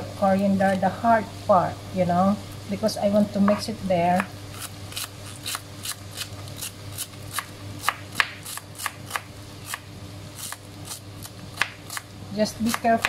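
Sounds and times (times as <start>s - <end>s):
steady low hum: 0.0s - 13.0s
knife chopping on cutting board: 7.0s - 9.8s.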